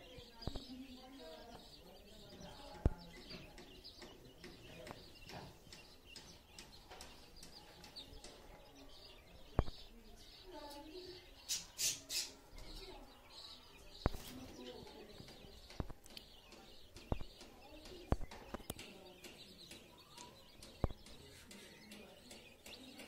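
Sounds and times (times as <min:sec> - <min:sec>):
baby chicks peeping: 0:00.0 - 0:23.0
sharp clicks: 0:15.2 - 0:23.0.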